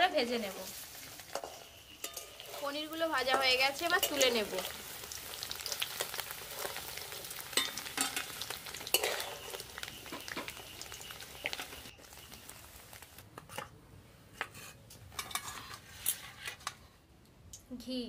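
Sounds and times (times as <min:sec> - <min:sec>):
food sizzling in hot oil: 0:00.0 - 0:13.2
metal spatula scraping and clinking: 0:01.2 - 0:04.6, 0:07.5 - 0:10.5, 0:14.4 - 0:16.8.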